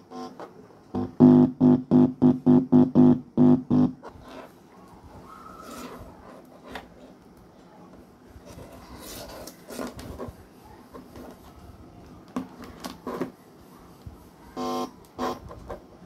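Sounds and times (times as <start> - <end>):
loudspeaker buzz: 1.0 - 4.0.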